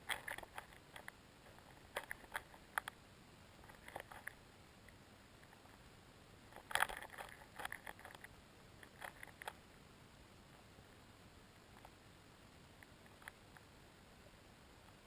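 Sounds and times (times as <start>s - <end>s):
small underwater clicks and crackles: 0.0s - 3.0s, 3.6s - 5.9s, 6.5s - 9.6s, 12.8s - 13.8s.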